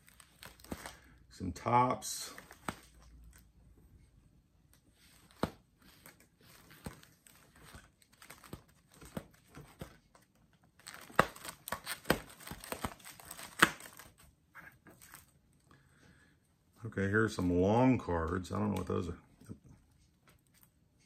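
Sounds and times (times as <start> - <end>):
plastic sheet protectors crinkling: 10.8 - 14.2.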